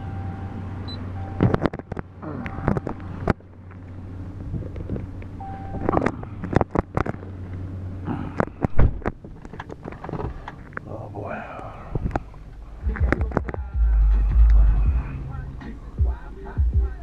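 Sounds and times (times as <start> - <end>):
dashboard warning chime: 0.0 - 1.6, 5.4 - 6.0
steady low hum: 0.0 - 17.0
clicks knocks and rustles in cab: 1.4 - 2.1, 8.4 - 10.8
car door slamming shut: 8.7 - 9.1.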